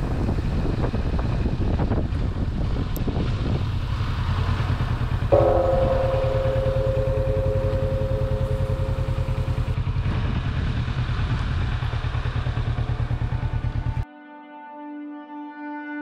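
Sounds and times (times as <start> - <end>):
motorcycle engine running: 0.0 - 14.0
ringing tone: 5.3 - 9.8.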